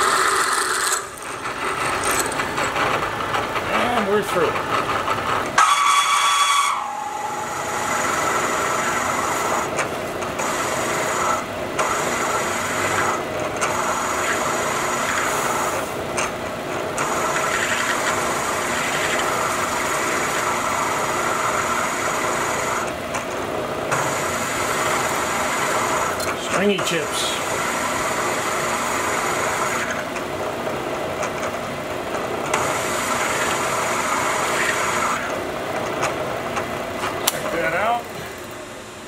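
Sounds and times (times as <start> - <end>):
milling cutter scraping steel: 0.0 - 16.4
milling machine hum: 0.0 - 39.0.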